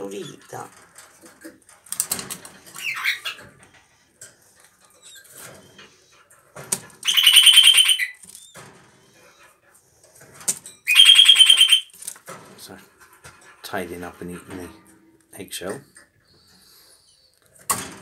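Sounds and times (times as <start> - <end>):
parakeet chattering calls: 2.8 - 3.4, 7.0 - 8.2, 10.9 - 11.9.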